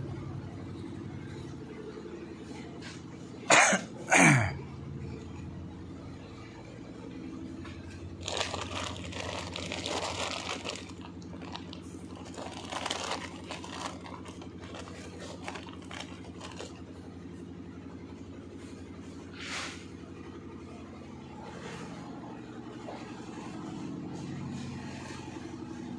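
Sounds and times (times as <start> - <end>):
low machine hum: 0.0 - 25.9
plastic wrapping crinkling: 8.1 - 16.9.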